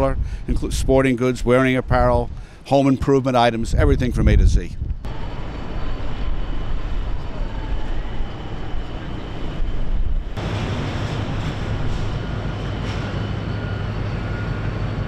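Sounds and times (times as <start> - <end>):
low rumble of machinery: 3.8 - 15.0.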